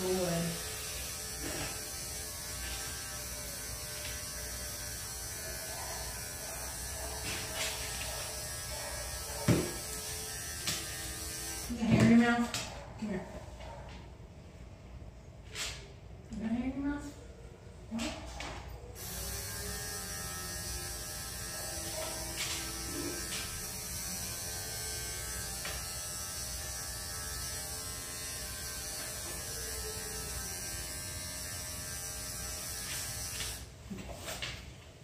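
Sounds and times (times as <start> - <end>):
electric clipper buzzing: 0.0 - 12.4, 19.0 - 33.7.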